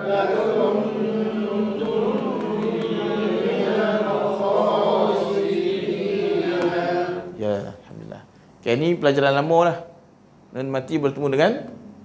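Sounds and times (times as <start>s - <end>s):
group of voices chanting: 0.0s - 7.4s.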